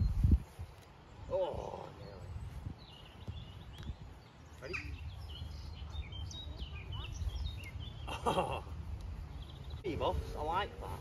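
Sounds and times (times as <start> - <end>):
birds chirping: 0.0 - 11.0
voices: 4.5 - 9.0.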